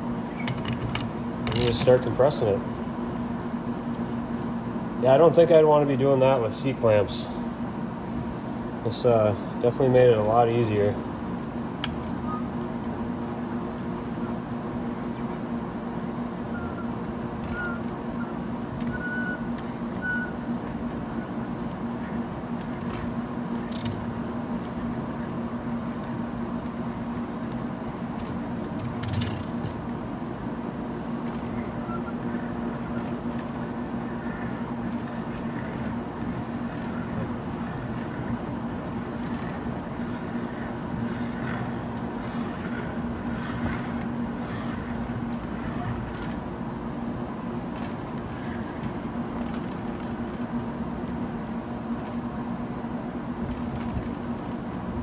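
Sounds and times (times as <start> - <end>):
steady low hum: 0.0 - 55.0
metal parts clicking and knocking: 0.4 - 1.9.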